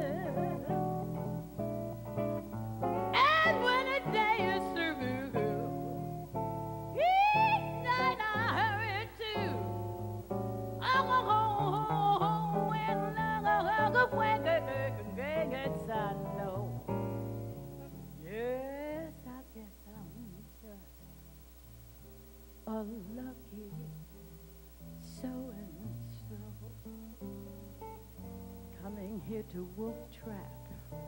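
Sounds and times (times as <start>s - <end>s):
woman scat singing: 0.0s - 0.9s, 3.1s - 5.8s, 7.0s - 9.8s, 10.8s - 16.9s, 28.8s - 31.0s
jazz guitar chords and bass notes: 0.0s - 19.2s, 23.7s - 31.0s.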